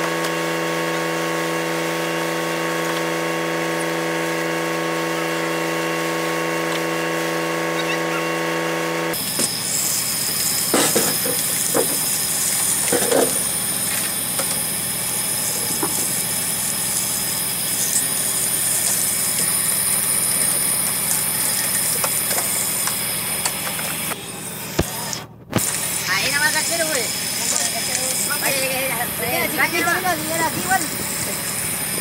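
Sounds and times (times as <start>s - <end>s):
boat engine and net hauler: 0.0s - 32.0s
high-pitched tone: 7.7s - 8.5s.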